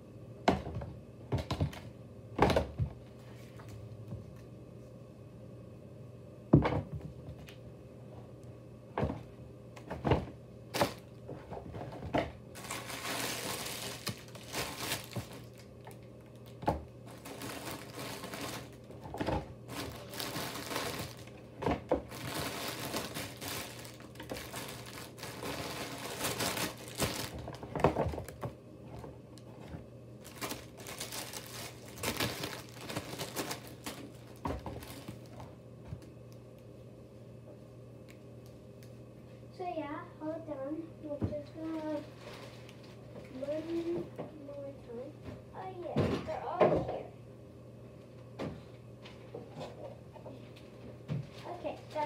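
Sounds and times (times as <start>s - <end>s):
bag rustling and crinkling: 12.5s - 35.5s, 41.6s - 44.0s.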